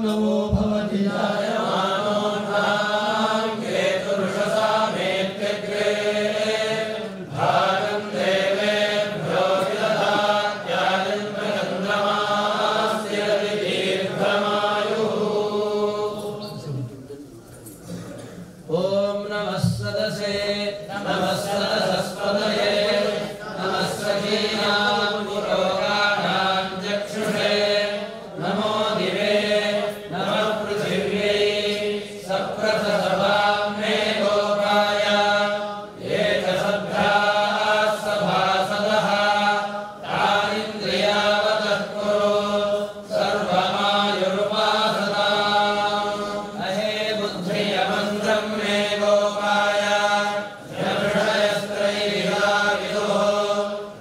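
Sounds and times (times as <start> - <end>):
men chanting mantras: 0.0 - 54.0.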